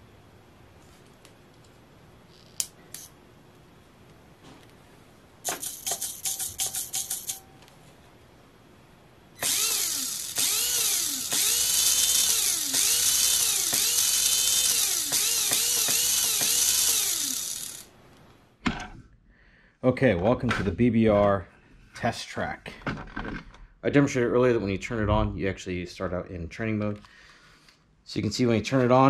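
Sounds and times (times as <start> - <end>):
electric motor whine: 9.4 - 17.9.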